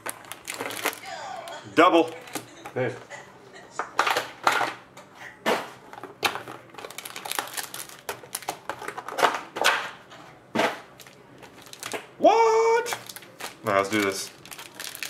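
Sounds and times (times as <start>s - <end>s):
foil packs crinkling: 0.0s - 2.5s, 6.0s - 9.5s, 10.8s - 12.0s, 12.9s - 15.0s.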